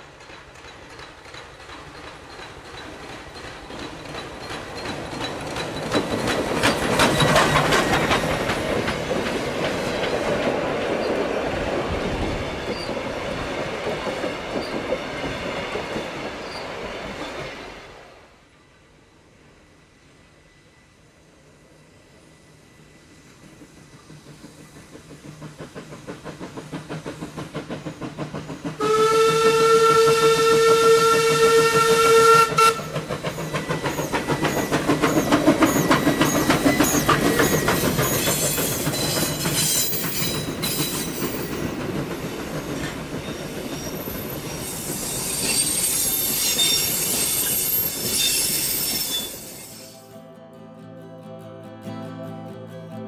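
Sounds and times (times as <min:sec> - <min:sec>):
wheels clicking over rail joints: 0:00.0 - 0:17.3, 0:23.6 - 0:48.1
steam locomotive exhaust beats: 0:21.0 - 0:49.6
steam whistle: 0:28.8 - 0:33.0
high-pitched wheel squeal: 0:43.7 - 0:50.1.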